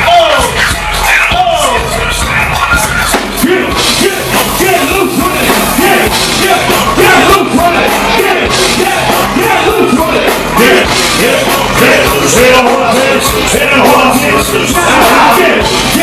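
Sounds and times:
loud live concert music: 0:00.0 - 0:16.0.

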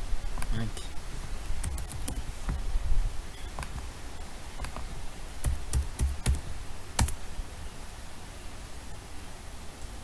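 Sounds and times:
computer keyboard keystrokes: 0:01.5 - 0:02.3, 0:03.5 - 0:03.9, 0:04.6 - 0:07.2.

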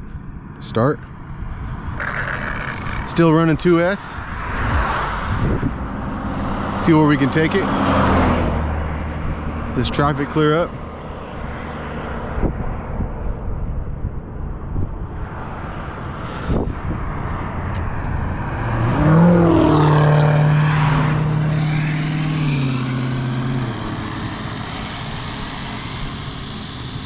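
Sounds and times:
car driving past: 0:04.1 - 0:09.8, 0:15.2 - 0:26.6.

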